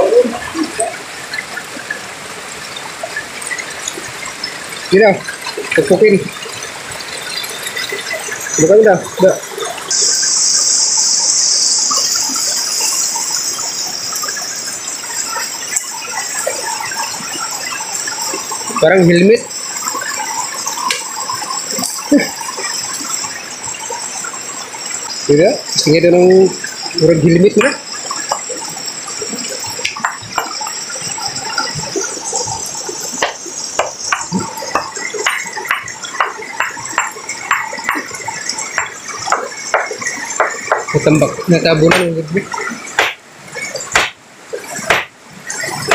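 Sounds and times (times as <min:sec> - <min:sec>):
stream water running over rocks: 0:00.0 - 0:45.9
high-pitched hiss: 0:07.2 - 0:45.9
sledgehammer striking a boulder: 0:44.0 - 0:44.2.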